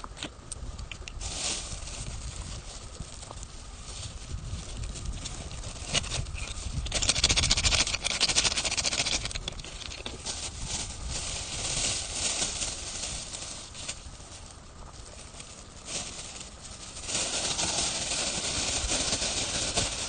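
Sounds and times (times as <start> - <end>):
plastic bag crinkling: 1.2 - 20.0.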